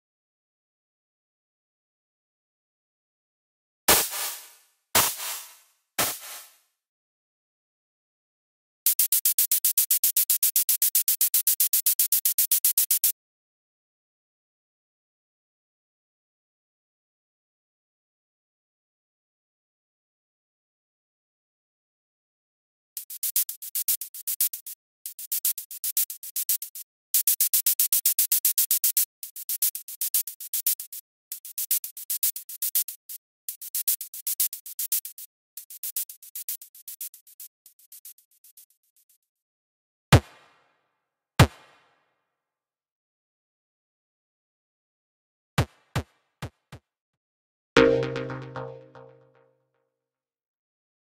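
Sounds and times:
synthesized shaker pattern: 8.9 - 13.1, 23.0 - 39.1, 47.8 - 49.2
synthesized shaker hits: 47.8 - 49.1.

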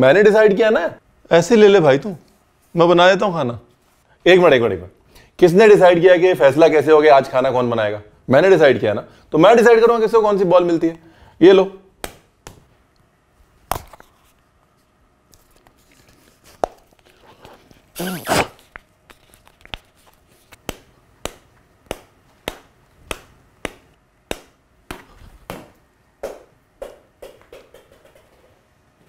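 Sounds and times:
ball bouncing on wooden board: 23.6 - 28.5.

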